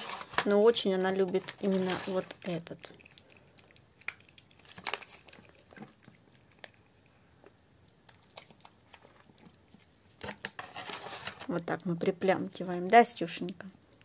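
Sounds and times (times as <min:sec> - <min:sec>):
dog chewing and lip-smacking: 0:01.3 - 0:10.3.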